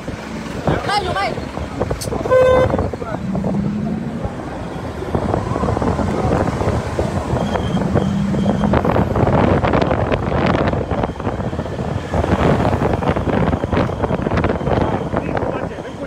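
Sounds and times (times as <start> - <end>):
road and traffic noise: 0.0 - 16.0
wind buffeting microphone: 0.0 - 16.0
low steady tone: 7.3 - 9.4.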